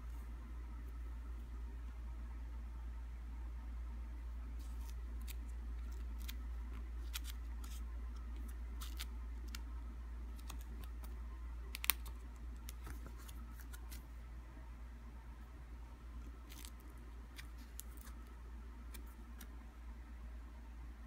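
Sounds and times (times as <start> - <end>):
steady low hum: 0.0 - 21.0
plastic sleeves crackling: 10.3 - 14.1, 16.3 - 18.3.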